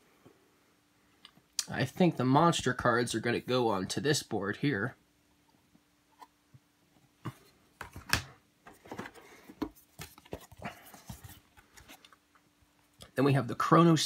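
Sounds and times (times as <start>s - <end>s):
cardboard game pieces handled: 7.2s - 12.2s.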